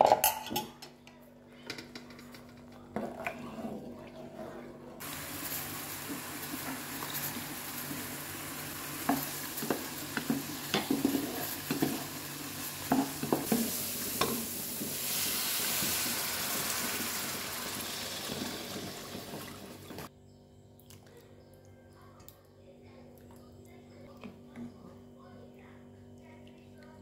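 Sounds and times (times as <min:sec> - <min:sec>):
food sizzling in a pan: 0:05.0 - 0:20.1.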